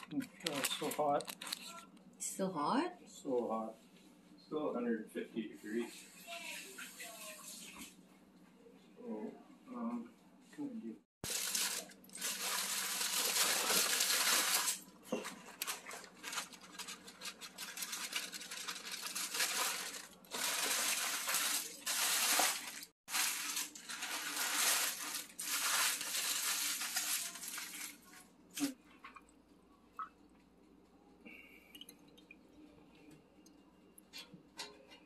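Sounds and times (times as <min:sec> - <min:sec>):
foil and paper crinkling: 0:00.0 - 0:01.9, 0:11.2 - 0:28.8.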